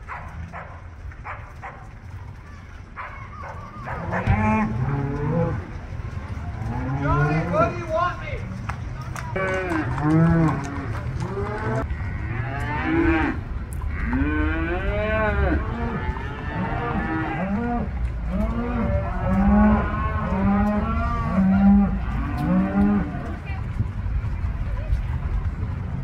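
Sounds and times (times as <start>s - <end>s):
cattle mooing: 3.8s - 5.7s, 6.5s - 7.8s, 9.4s - 23.4s
steady low rumble: 4.0s - 26.0s.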